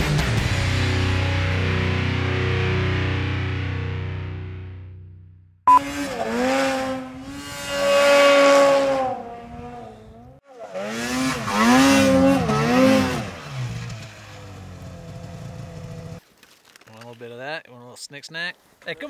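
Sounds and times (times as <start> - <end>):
snowmobile engine revving: 5.7 - 16.2.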